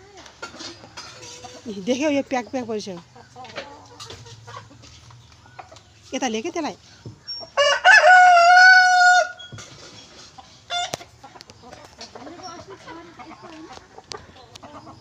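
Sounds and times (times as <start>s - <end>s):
chicken clucking: 0.0s - 15.0s
rooster crowing: 7.6s - 9.5s.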